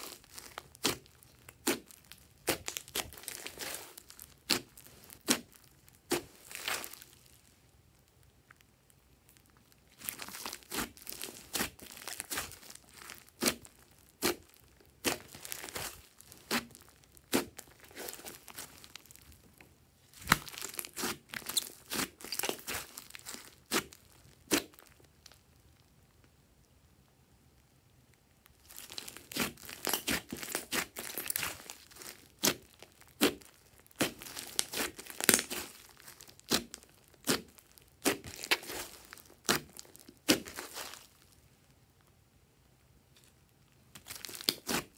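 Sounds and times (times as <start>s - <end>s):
slime clicking and popping: 0.0s - 6.7s, 28.7s - 40.8s.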